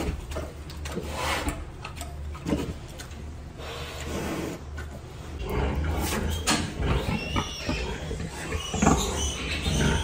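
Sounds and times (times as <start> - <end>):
pig grunts: 5.4 - 10.0
piglets squealing: 6.8 - 10.0.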